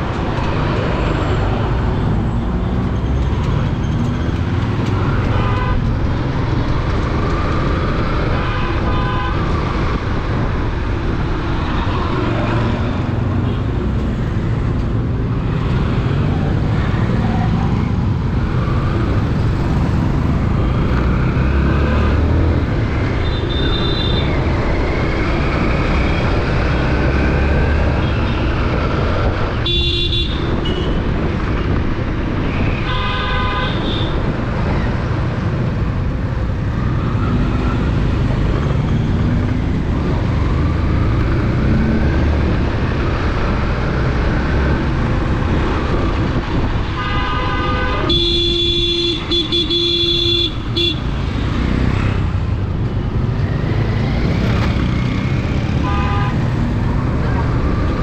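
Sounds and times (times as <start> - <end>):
vehicle horns: 5.0 - 6.0, 8.3 - 9.5, 23.2 - 24.3, 29.5 - 31.0, 32.5 - 34.3, 46.8 - 51.2, 55.7 - 56.7
wind on microphone: 33.7 - 47.0.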